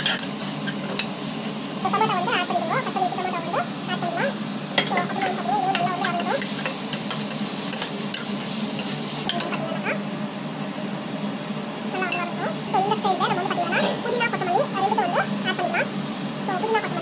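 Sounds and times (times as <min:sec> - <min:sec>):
ladle scraping a pan: 0:00.0 - 0:01.6
vegetables sizzling in oil: 0:00.0 - 0:17.0.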